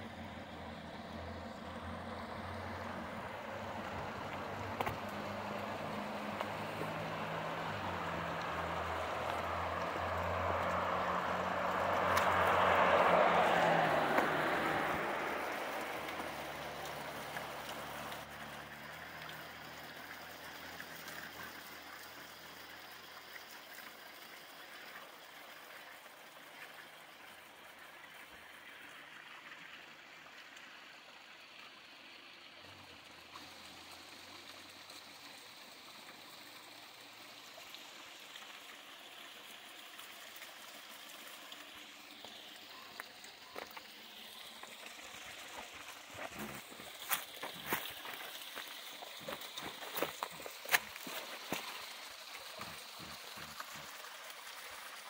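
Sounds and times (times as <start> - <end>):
car passing: 0.0 - 22.8, 40.8 - 55.0.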